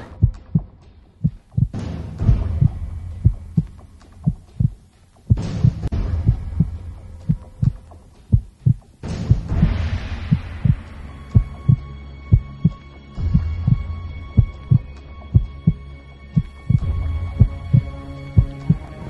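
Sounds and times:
heartbeat thumps: 0.0s - 19.0s
low hum: 0.0s - 19.0s.

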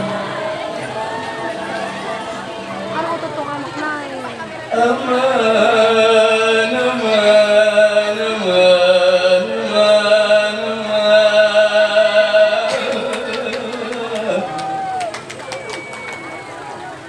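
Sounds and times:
vocal group chanting in unison: 0.0s - 2.9s, 4.6s - 14.6s.

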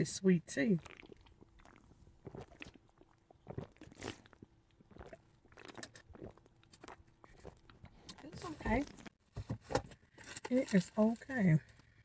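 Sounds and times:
sips and swallows: 0.7s - 8.2s.

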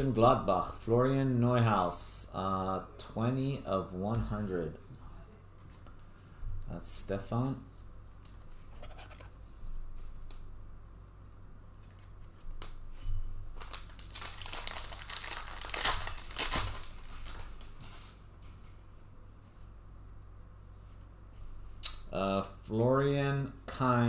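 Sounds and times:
plastic crinkling: 13.5s - 18.2s.

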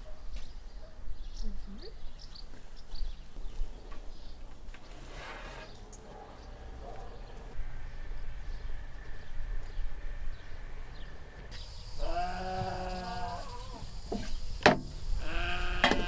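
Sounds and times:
farm animal bleating: 11.9s - 13.9s, 15.1s - 16.0s.

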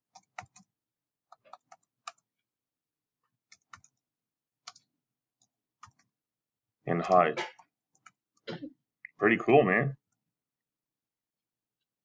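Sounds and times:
faint keyboard typing: 0.0s - 2.4s, 3.3s - 6.2s, 7.0s - 8.5s.

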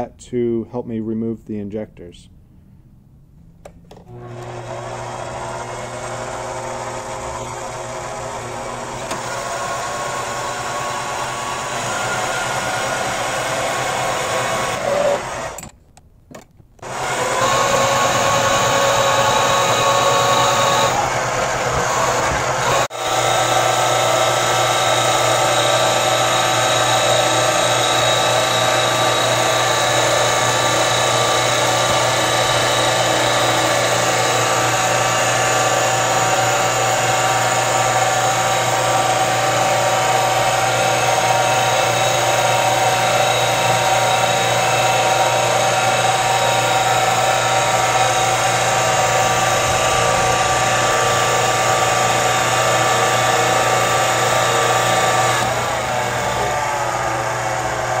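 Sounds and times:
lathe motor whine: 4.0s - 15.6s, 16.8s - 58.0s
cutting tool turning metal: 16.8s - 57.9s.

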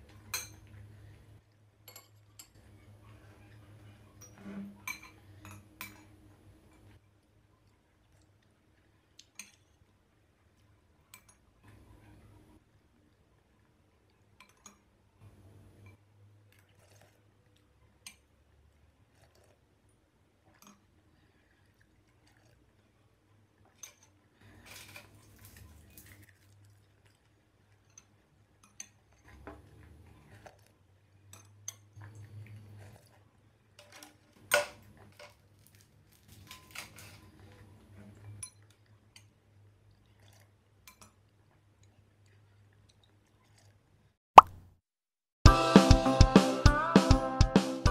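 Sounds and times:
quiet eating sounds: 0.0s - 44.2s
spoon clinking against glass bowl: 4.9s - 6.1s.

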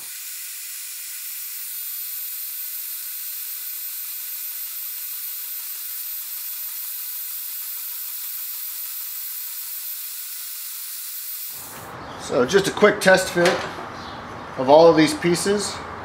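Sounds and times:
band saw cutting steel tube: 0.0s - 11.8s.

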